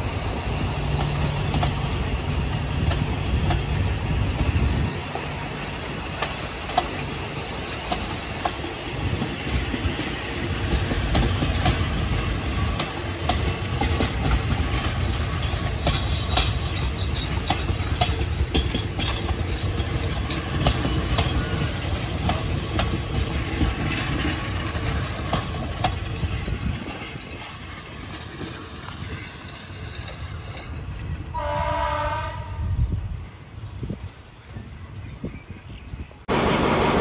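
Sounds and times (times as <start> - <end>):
wheels clicking over rail joints: 0.0 - 31.6
train coaches rumbling past: 0.0 - 37.0
train horn: 31.3 - 32.9.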